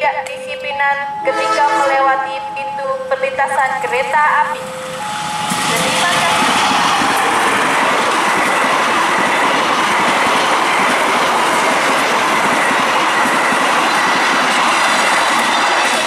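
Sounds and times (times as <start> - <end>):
train wheels rushing on rails: 4.5 - 16.0.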